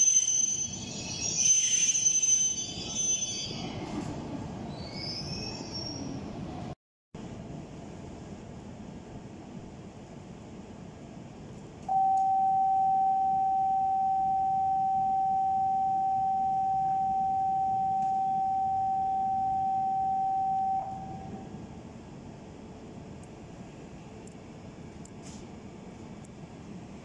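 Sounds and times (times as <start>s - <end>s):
standing train rumble: 2.6s - 11.8s, 20.9s - 27.0s
electronic departure buzzer tone: 11.9s - 21.4s.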